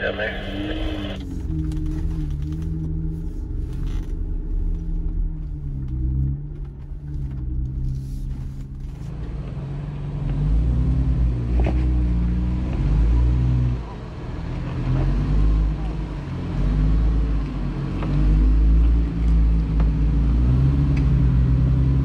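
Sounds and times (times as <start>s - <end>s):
engine revving on a climb: 8.9s - 22.0s.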